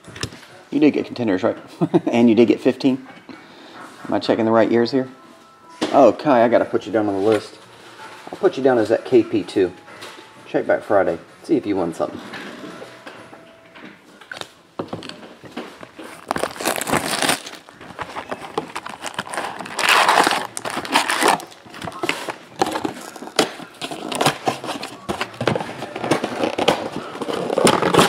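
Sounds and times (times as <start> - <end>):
foil packs crinkling: 15.8 - 28.0.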